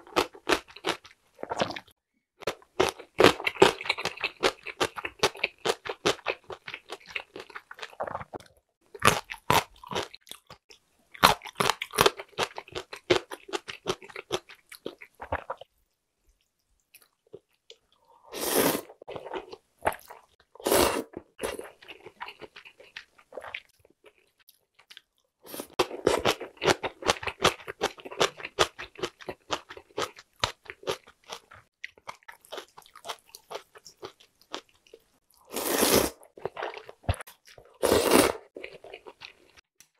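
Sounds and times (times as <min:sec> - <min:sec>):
slurping noodles: 0:18.2 - 0:19.2, 0:20.6 - 0:21.6, 0:35.5 - 0:36.8, 0:37.7 - 0:38.9.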